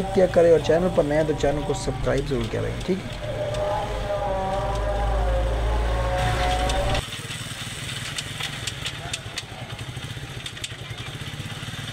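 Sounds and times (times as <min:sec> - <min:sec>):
person speaking: 0:00.0 - 0:07.0
small motorcycle engine running: 0:00.0 - 0:11.9.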